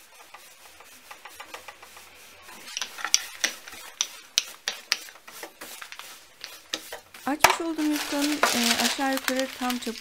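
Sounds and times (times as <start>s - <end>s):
rolling pin on wooden board: 0.0s - 8.8s.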